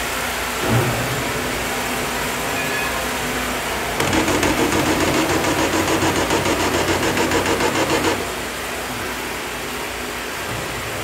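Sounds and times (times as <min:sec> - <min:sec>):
sawmill machinery humming: 0:03.0 - 0:10.1
rapid mechanical clatter: 0:04.0 - 0:08.5.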